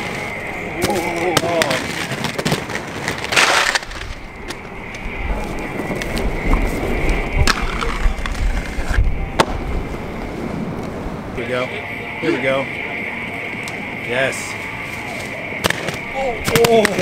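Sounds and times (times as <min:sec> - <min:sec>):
skate wheels rumbling on concrete: 0:00.0 - 0:11.4
steady high whine: 0:00.0 - 0:17.0.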